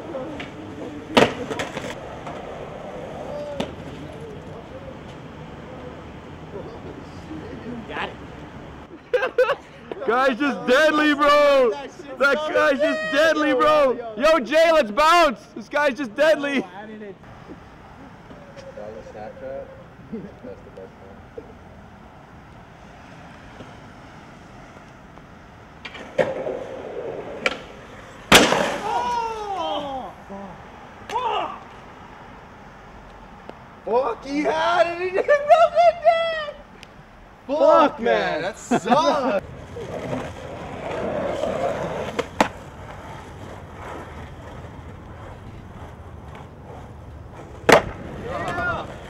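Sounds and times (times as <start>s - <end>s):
skateboard wheels rolling: 0.0s - 15.2s, 17.3s - 33.6s, 37.8s - 49.0s
faint outdoor hiss: 0.0s - 49.0s
skateboard landing slap: 0.3s - 2.4s, 3.4s - 4.0s, 27.3s - 29.2s, 42.1s - 42.6s, 47.6s - 48.7s
skateboard clacking onto concrete: 0.3s - 2.5s, 25.8s - 28.9s, 39.7s - 46.8s, 47.4s - 49.0s.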